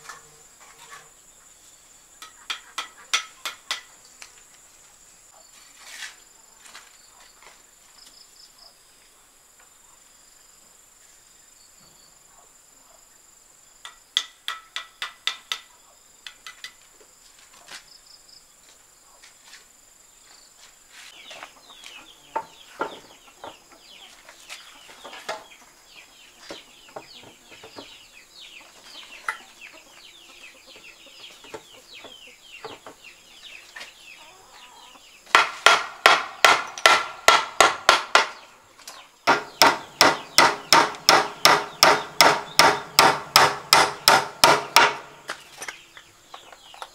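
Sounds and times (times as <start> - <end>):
chickens clucking: 0.0 - 3.9, 21.1 - 35.3
hammer striking wooden board: 2.5 - 3.9, 14.2 - 15.7, 35.3 - 38.4, 39.3 - 45.2.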